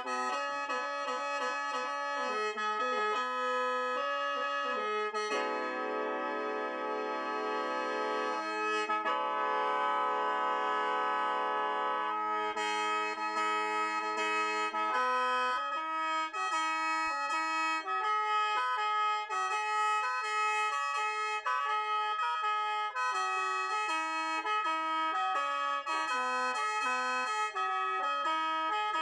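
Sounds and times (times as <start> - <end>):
mouth organ playing: 0.0 - 17.1.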